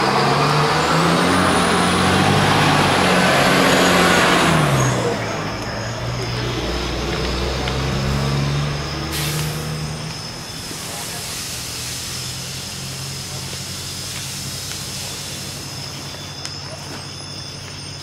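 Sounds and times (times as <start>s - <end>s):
truck engine humming: 0.0s - 18.0s
short sharp hiss: 9.1s - 9.7s.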